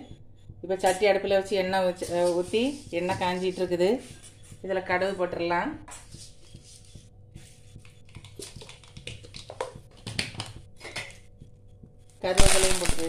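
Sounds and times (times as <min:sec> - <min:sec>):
seeds crackling in hot oil: 0:12.3 - 0:13.0.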